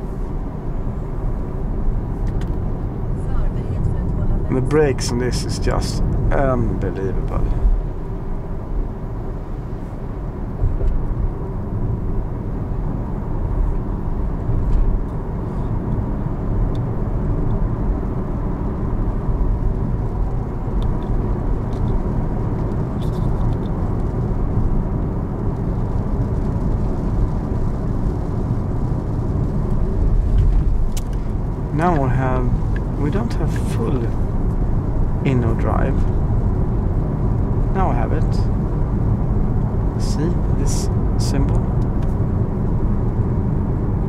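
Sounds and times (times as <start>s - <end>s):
tyre and wind noise: 14.4s - 31.8s.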